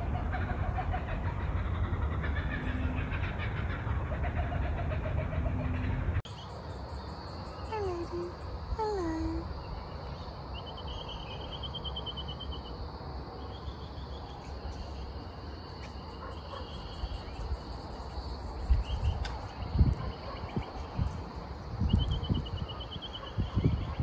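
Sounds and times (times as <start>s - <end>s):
wind buffeting microphone: 18.4s - 24.0s.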